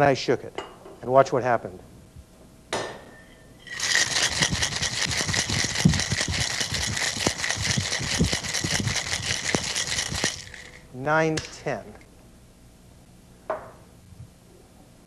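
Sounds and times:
ice clinking: 0:03.6 - 0:10.8
ice rattling in cocktail shaker: 0:03.6 - 0:10.9.

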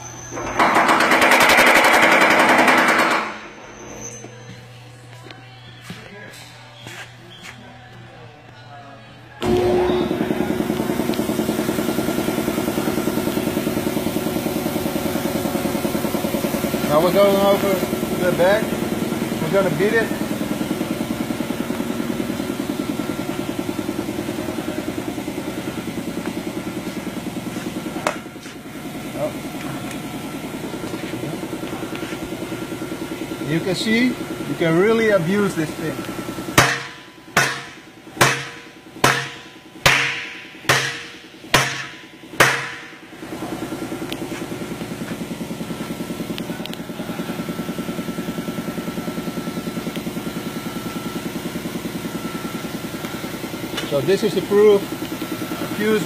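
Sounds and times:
workshop machinery pulsing: 0:00.0 - 0:56.0
hammer beating sheet metal: 0:00.4 - 0:03.6, 0:36.5 - 0:43.0.

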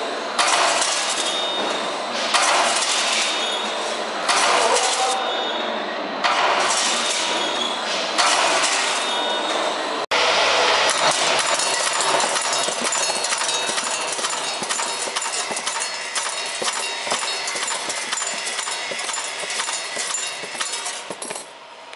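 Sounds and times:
rapid metallic clicks and rattles: 0:10.9 - 0:21.6.

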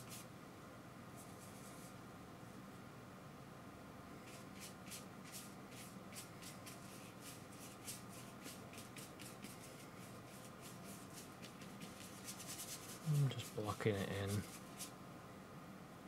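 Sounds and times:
paintbrush strokes on canvas: 0:00.0 - 0:00.3, 0:01.1 - 0:02.0, 0:04.2 - 0:15.0.

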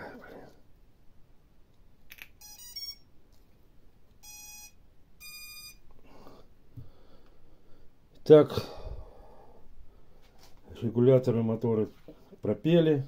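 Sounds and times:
motor start-up beeps: 0:04.2 - 0:05.8.

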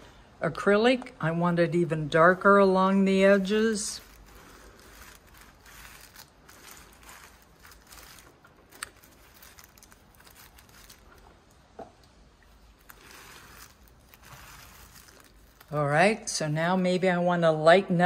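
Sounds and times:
fingers rubbing paint on paper: 0:03.2 - 0:11.0, 0:12.8 - 0:15.8.

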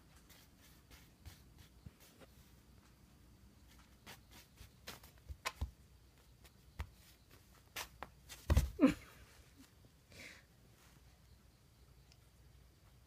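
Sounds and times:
cat paws tapping on mat: 0:03.7 - 0:05.8, 0:06.4 - 0:08.8.

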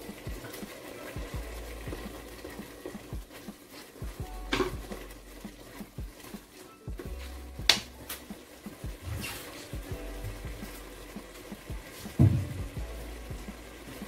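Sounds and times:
spatula scraping and knocking pot: 0:00.2 - 0:10.8.

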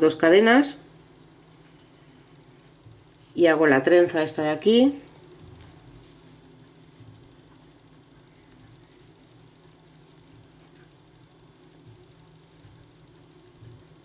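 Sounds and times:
yarn rustling: 0:00.0 - 0:14.0.

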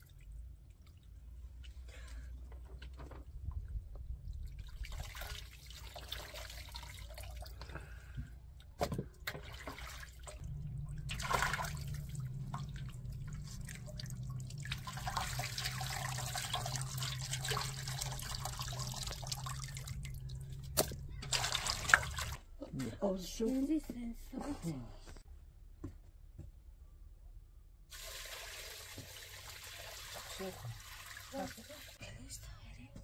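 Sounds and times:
water splashing and dripping: 0:00.0 - 0:02.0, 0:03.3 - 0:07.7, 0:08.6 - 0:22.4, 0:27.9 - 0:32.0
low steady hum: 0:06.7 - 0:25.6, 0:30.3 - 0:33.0.

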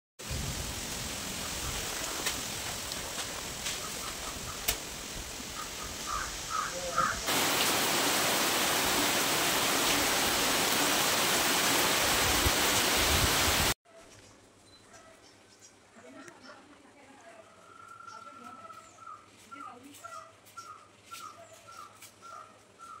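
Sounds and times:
heavy rain pouring on trees: 0:00.2 - 0:13.8
light rain: 0:00.2 - 0:13.8
bird calling: 0:03.7 - 0:04.9, 0:05.5 - 0:13.5.

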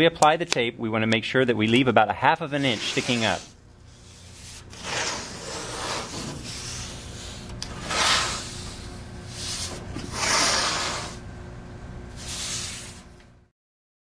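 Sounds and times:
tape rubbing: 0:02.6 - 0:11.2, 0:12.2 - 0:13.2.

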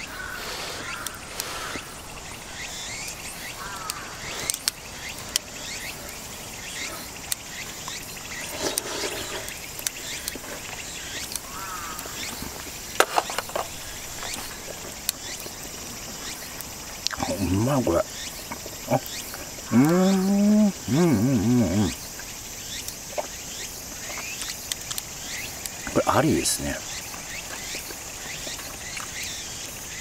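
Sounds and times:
steady background hiss: 0:00.0 - 0:30.0.

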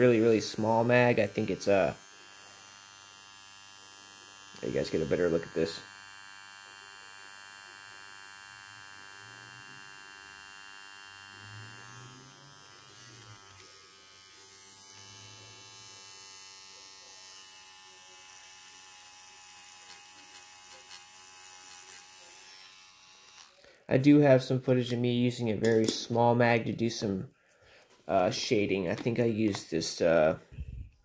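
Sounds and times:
tattoo machine buzzing: 0:00.0 - 0:23.7.

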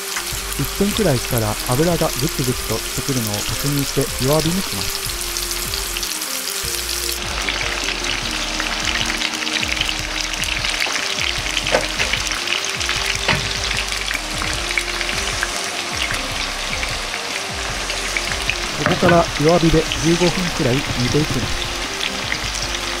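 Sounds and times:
oil bubbling and crackling: 0:00.0 - 0:23.0.

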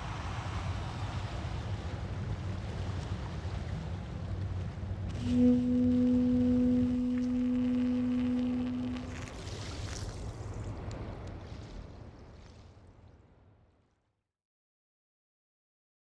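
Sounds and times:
low rumble: 0:05.1 - 0:09.4
steady clear tone: 0:05.2 - 0:09.3.

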